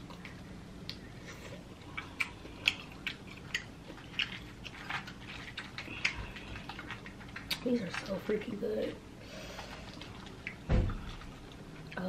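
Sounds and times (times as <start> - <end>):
chewing: 0.0 - 8.4, 9.4 - 12.0
crawfish shells clicking and crackling: 1.7 - 8.9, 9.6 - 12.0.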